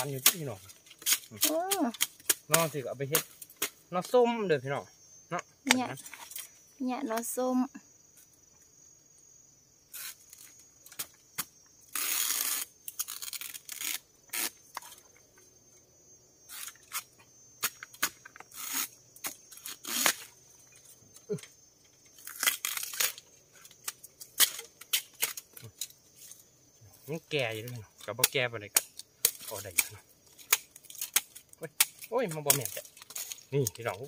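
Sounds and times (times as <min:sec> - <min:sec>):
bamboo stalks snapping: 0:00.0 - 0:03.8, 0:10.0 - 0:14.9, 0:16.5 - 0:20.3, 0:22.1 - 0:26.0, 0:27.6 - 0:34.0
tearing rustle of undergrowth: 0:11.9 - 0:15.0, 0:16.4 - 0:20.4, 0:22.1 - 0:26.5, 0:29.2 - 0:34.0.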